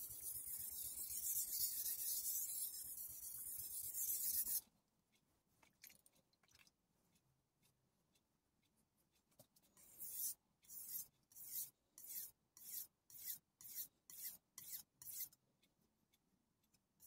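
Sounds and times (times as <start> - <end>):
knife scraping on whetstone: 0.0 - 4.6, 9.9 - 15.3.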